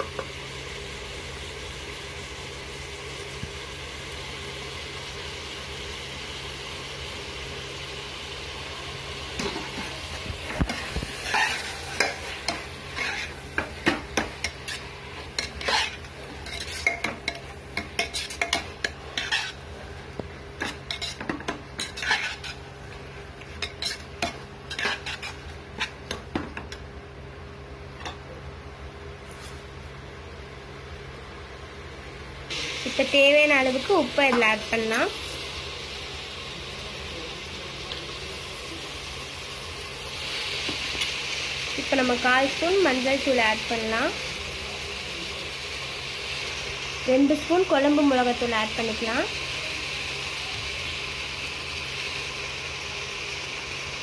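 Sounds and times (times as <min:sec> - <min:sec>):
vegetables sizzling in a pot: 0:00.0 - 0:54.0
metal spatula scraping a pot: 0:10.7 - 0:13.6, 0:14.2 - 0:19.7, 0:20.6 - 0:22.6, 0:23.6 - 0:26.1.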